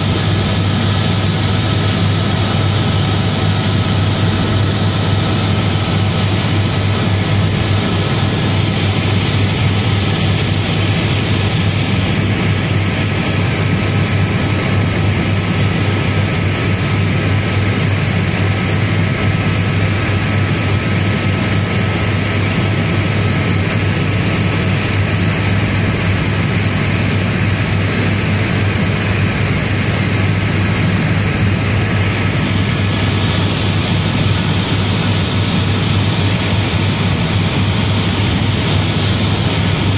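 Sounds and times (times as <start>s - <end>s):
helicopter rotor and engine drone: 0.0s - 39.9s.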